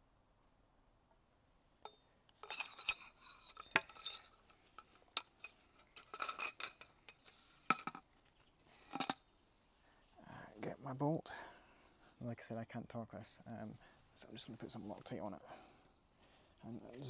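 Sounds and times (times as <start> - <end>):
metal parts clinking and rattling: 1.8 - 8.0, 8.8 - 9.2.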